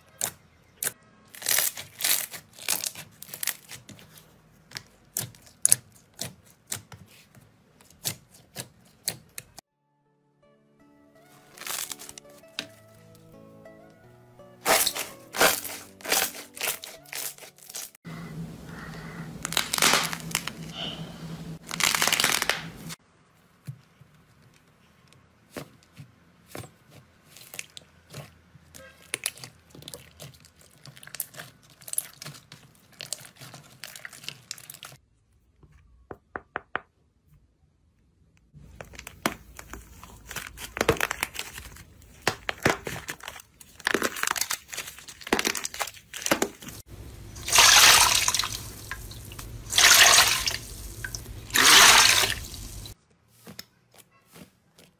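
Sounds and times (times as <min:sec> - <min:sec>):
light background music: 0:09.8 - 0:17.9
slime crackling when squeezed: 0:21.6 - 0:22.7.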